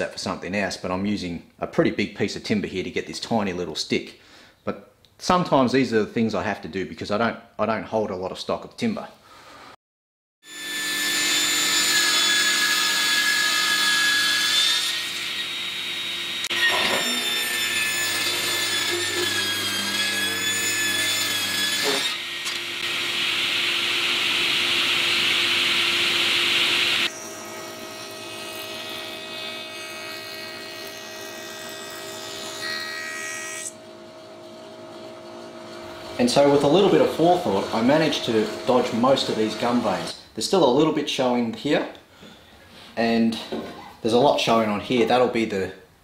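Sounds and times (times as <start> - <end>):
table saw blade whine: 10.5 - 40.2
saw ripping timber board: 16.4 - 33.8, 35.5 - 40.2.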